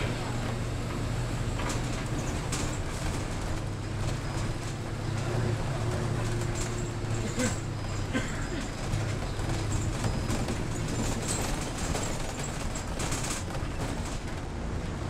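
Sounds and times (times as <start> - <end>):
bus engine drone: 0.0 - 15.0.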